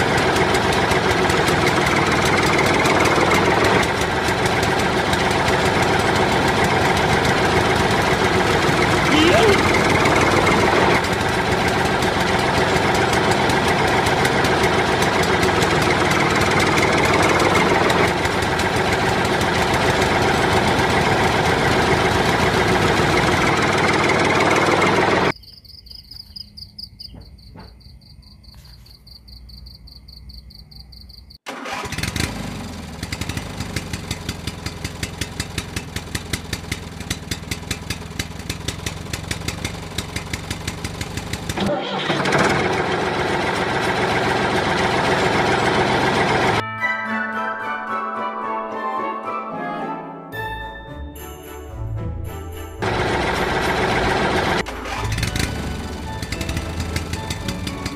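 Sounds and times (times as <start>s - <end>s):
toy tractor engine running: 0.0s - 25.4s, 31.5s - 46.6s, 52.8s - 57.9s.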